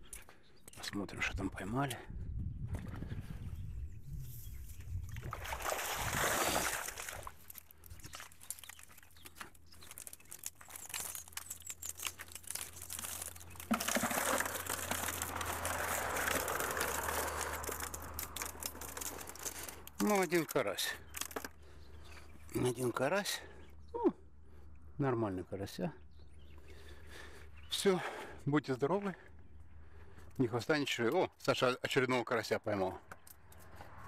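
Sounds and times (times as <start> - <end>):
water splashing into a plastic bucket: 5.1 - 8.7, 13.0 - 19.5.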